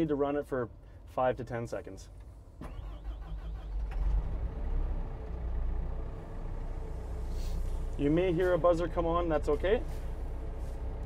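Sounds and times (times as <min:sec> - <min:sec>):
diesel engine starting and idling: 0:02.2 - 0:11.0.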